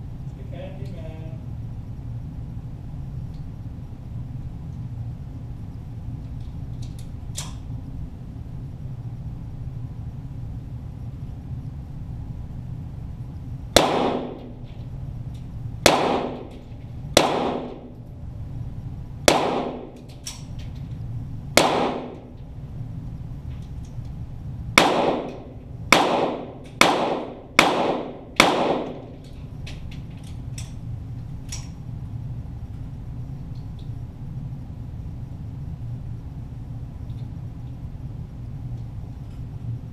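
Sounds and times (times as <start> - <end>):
steady low hum: 0.0 - 39.9
pistol shots echoing: 13.8 - 14.6, 15.8 - 17.9, 19.3 - 20.0, 21.6 - 22.3, 24.8 - 29.2.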